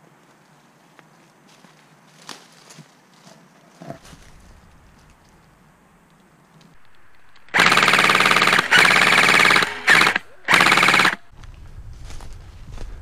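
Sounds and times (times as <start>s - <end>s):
airsoft rifle firing bursts: 6.9s - 11.3s.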